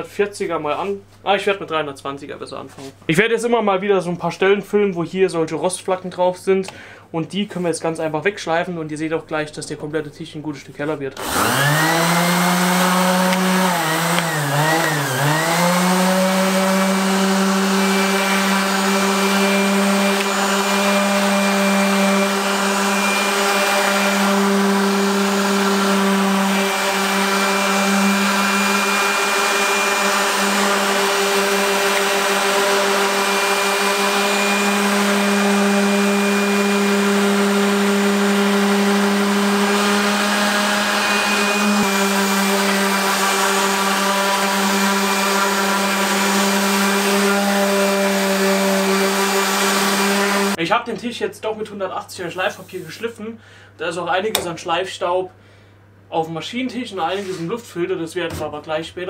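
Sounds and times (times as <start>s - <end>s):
orbital sander humming: 11.2s - 50.6s.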